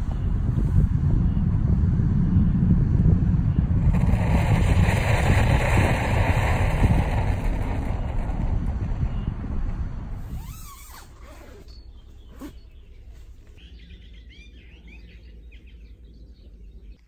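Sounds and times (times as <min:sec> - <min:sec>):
wind buffeting microphone: 0:00.0 - 0:13.1.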